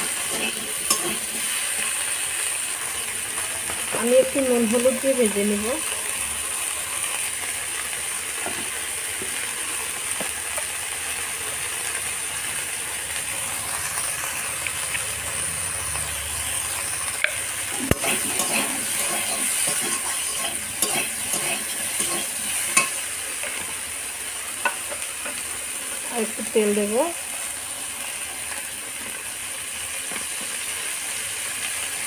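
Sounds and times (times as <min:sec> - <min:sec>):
metal spatula scraping pan: 0:00.0 - 0:01.6, 0:17.3 - 0:23.6
okra sizzling in oil: 0:00.0 - 0:32.0.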